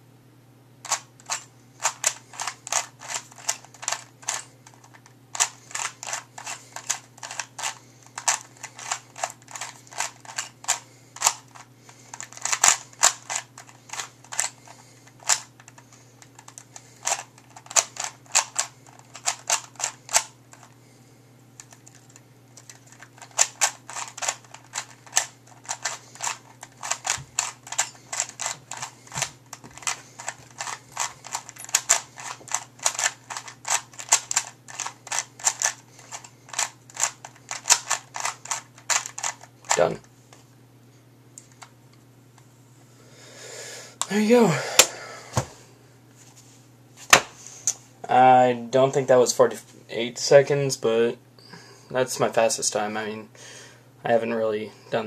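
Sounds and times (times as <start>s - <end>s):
puzzle cube clicking: 21.6s - 39.8s.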